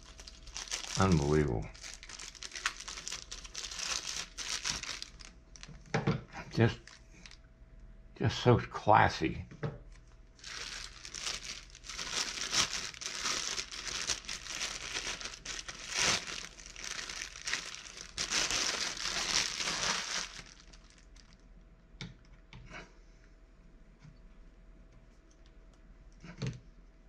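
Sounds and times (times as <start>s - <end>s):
plastic bag crinkling: 0.0s - 7.4s, 9.9s - 21.4s.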